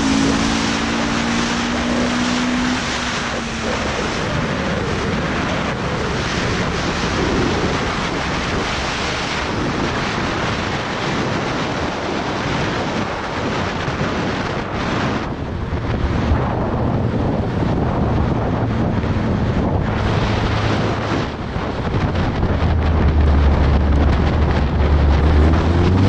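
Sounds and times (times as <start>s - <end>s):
wind buffeting microphone: 0.0s - 26.0s
faint car engine: 15.5s - 26.0s.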